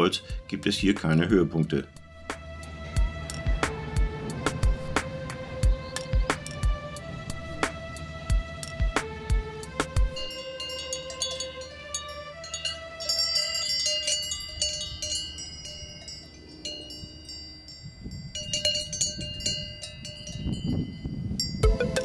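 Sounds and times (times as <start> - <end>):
music with a steady beat: 0.3 - 10.4, 21.6 - 22.0
low rumbling noise: 1.8 - 10.4
cowbells clanking: 10.2 - 22.0.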